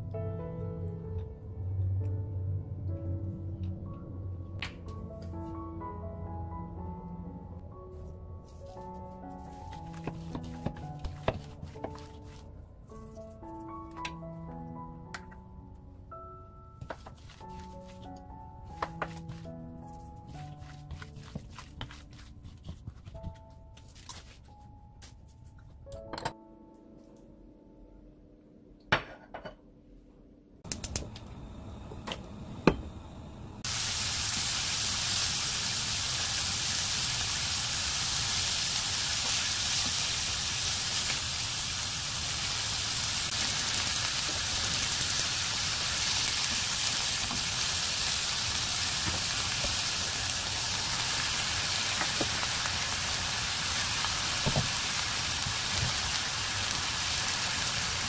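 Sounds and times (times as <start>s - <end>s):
beef sizzling in hot oil: 33.6s - 58.0s.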